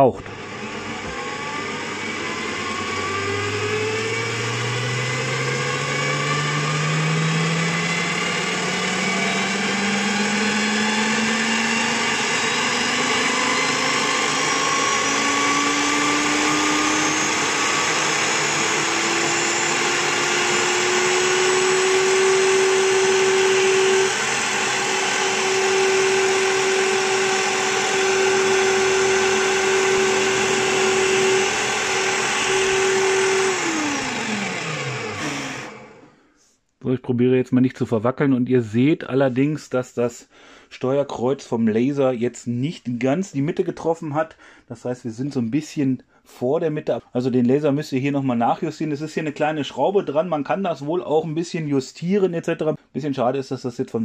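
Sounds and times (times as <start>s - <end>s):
drill press motor whine: 0.2s - 36.2s
drill bit drilling into wood: 0.9s - 36.0s.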